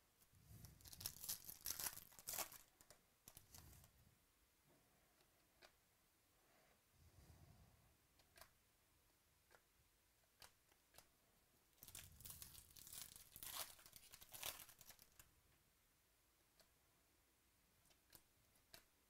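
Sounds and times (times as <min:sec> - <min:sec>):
foil wrapper tearing and crinkling: 0:00.8 - 0:03.4, 0:11.8 - 0:15.2.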